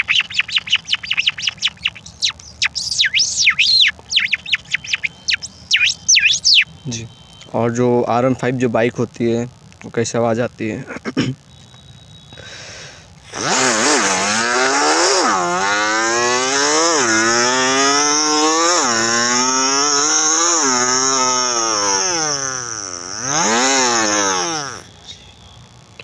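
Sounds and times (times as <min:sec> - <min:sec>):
man imitating motorcycle engine: 0:13.3 - 0:24.9.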